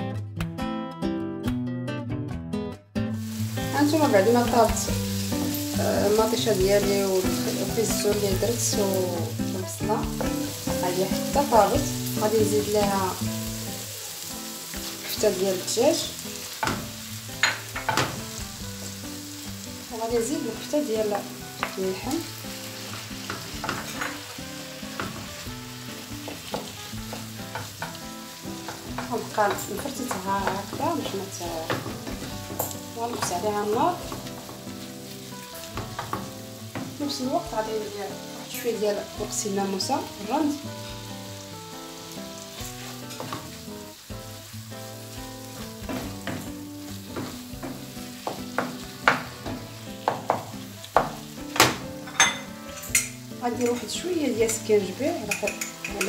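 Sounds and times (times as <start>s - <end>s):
meat sizzling in a frying pan: 3.1s - 56.0s
spoon knocking and scraping pan: 16.5s - 19.0s, 21.0s - 37.1s, 42.7s - 43.6s, 45.5s - 56.0s
spoon clicking against pan: 54.5s - 56.0s.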